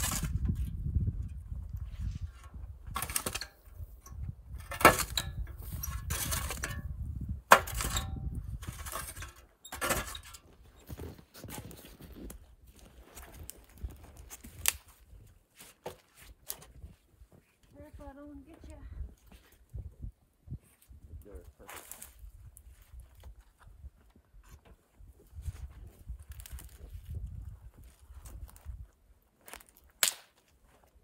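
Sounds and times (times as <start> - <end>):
metal shovel scraping fire pit: 0.0 - 14.8, 21.6 - 22.2.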